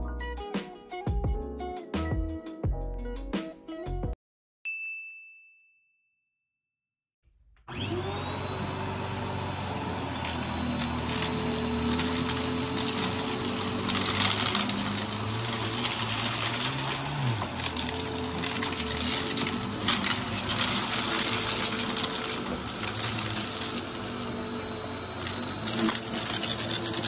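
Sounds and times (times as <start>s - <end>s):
vacuum cleaner motor whine: 7.7s - 27.0s
vacuum sucking up debris: 7.7s - 27.0s.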